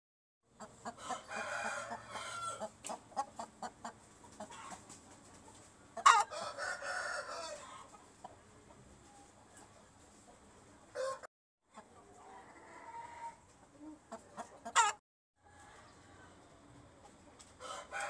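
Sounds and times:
rooster crowing: 1.0s - 2.7s, 6.1s - 7.9s, 11.0s - 11.3s, 17.6s - 18.0s.

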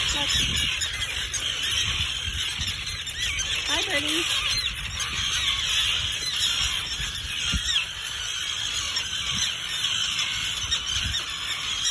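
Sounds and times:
terns harsh alarm calls: 0.0s - 11.9s.

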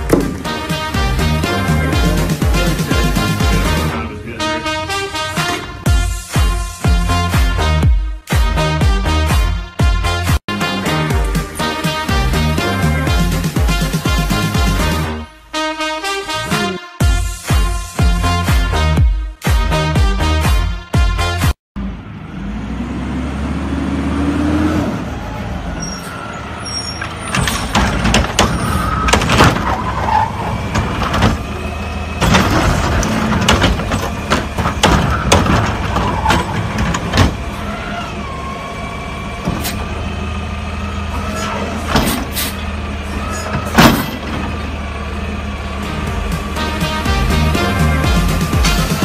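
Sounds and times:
metal clanks and bangs: 0.0s - 1.0s, 26.8s - 38.2s, 41.1s - 45.0s, 47.4s - 49.0s
hydraulics whining: 0.0s - 7.8s, 21.8s - 49.0s
diesel engine running: 0.0s - 7.9s, 21.8s - 49.0s.

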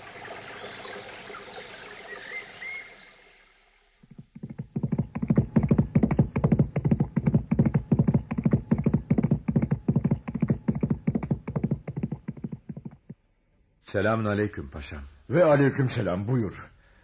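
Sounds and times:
horse hooves galloping: 4.0s - 13.2s.

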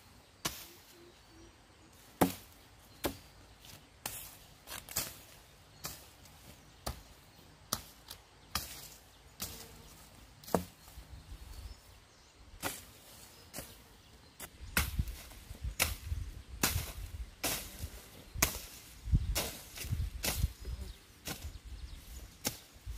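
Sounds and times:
machete chopping into dry ground: 0.4s - 0.8s, 2.1s - 3.3s, 4.0s - 6.2s, 7.7s - 9.7s, 10.4s - 11.0s, 12.6s - 13.8s, 14.4s - 20.6s, 21.2s - 21.6s, 22.3s - 22.8s.

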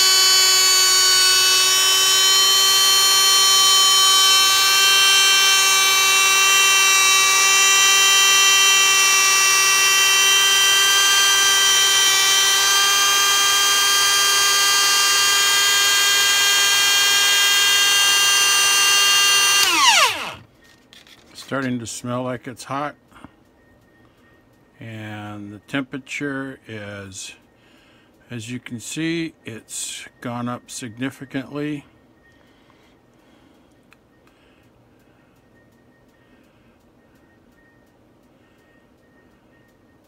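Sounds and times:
die grinder whining: 0.0s - 20.5s.

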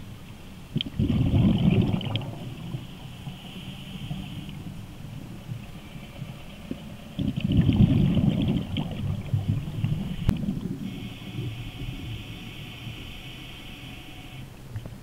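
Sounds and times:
exhaled bubbles underwater: 0.7s - 5.6s, 6.7s - 12.1s
regulator hiss: 2.5s - 7.2s, 9.2s - 14.6s.

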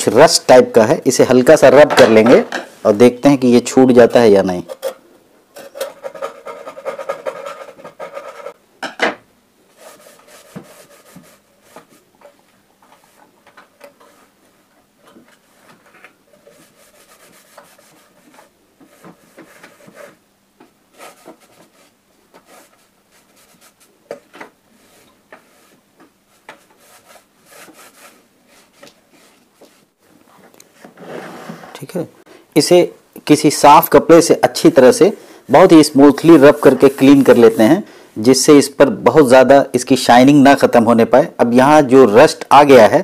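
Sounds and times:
cloth rubbing metal: 5.7s - 8.6s, 15.3s - 20.2s, 35.6s - 37.8s
brush scrubbing metal: 9.7s - 12.0s, 15.4s - 20.2s, 36.1s - 37.8s.

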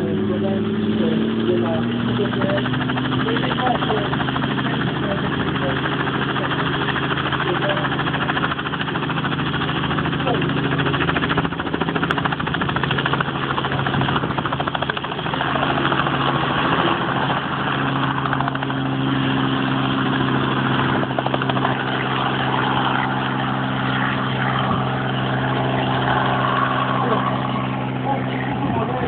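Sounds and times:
helicopter engine and rotor: 0.0s - 29.0s.

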